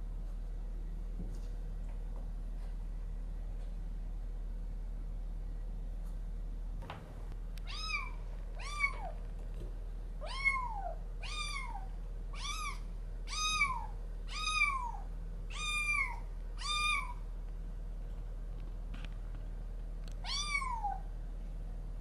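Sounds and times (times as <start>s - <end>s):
kitten mewing: 7.6s - 9.2s, 10.2s - 17.2s.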